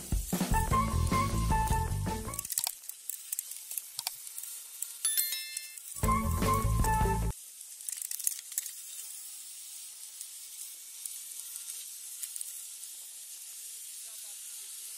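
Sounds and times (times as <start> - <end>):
loud burst of music: 0.4 - 2.4.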